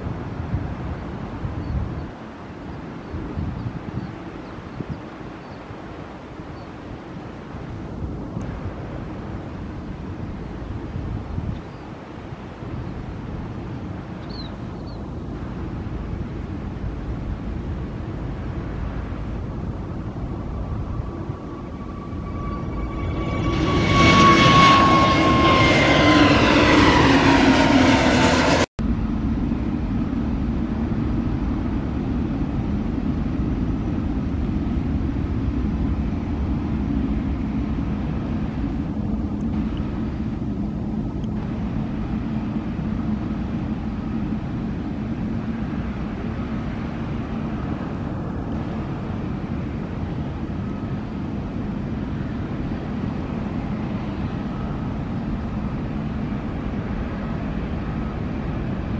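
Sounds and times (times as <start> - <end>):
distant jet rumble: 0.0 - 58.9
jet airliner engine whine: 0.0 - 58.9.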